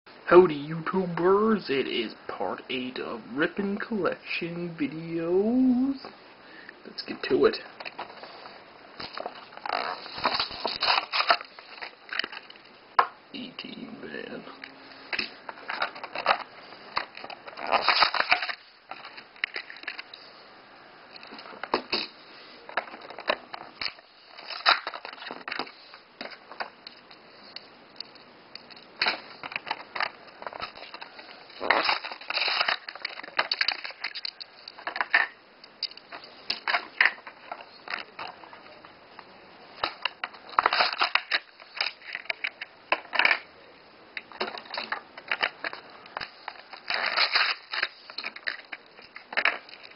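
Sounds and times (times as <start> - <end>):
plastic crackling and crunching: 7.0 - 13.1, 15.0 - 20.2, 21.1 - 43.5, 44.2 - 49.9.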